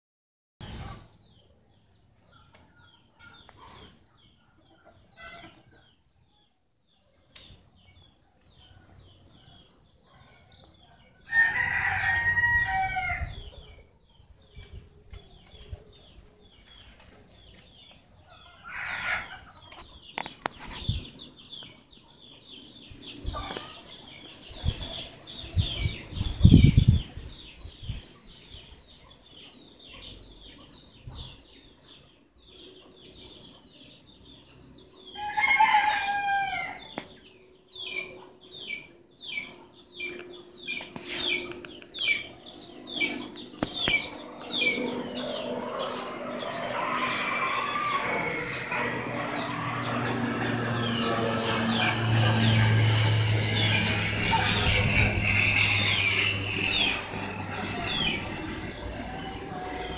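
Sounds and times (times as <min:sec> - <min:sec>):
small birds chirping: 0:36.8 - 0:59.9
loud drawn-out bird call: 0:45.8 - 0:59.9
low rumble: 0:45.8 - 0:59.9.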